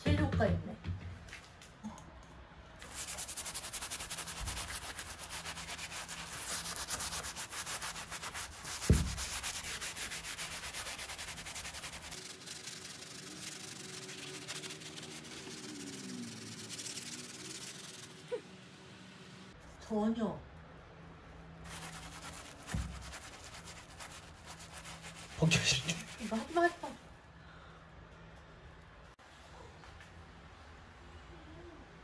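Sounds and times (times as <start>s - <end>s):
steel wool scrubbing wallpaper: 2.8s - 18.4s, 21.6s - 27.1s
dull thump: 8.8s - 9.4s, 22.6s - 23.1s.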